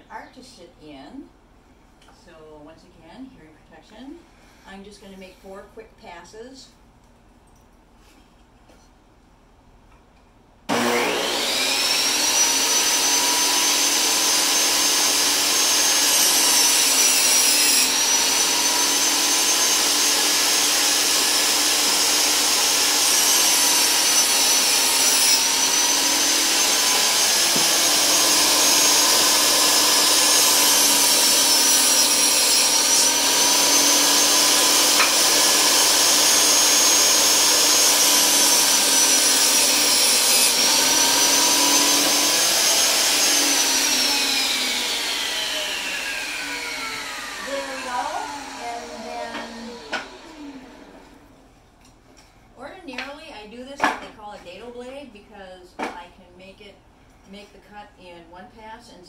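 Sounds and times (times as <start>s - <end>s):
table saw cutting wood: 10.7s - 51.3s.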